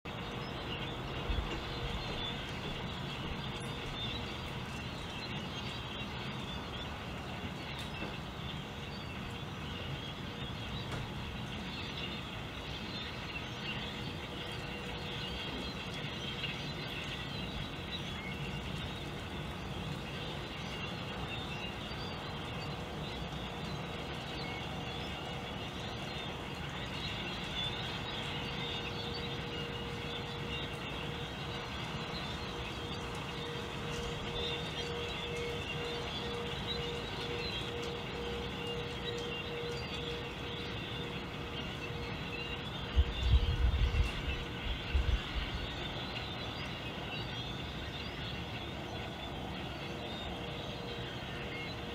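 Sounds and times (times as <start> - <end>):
flock of birds chirping: 0.1 - 51.9.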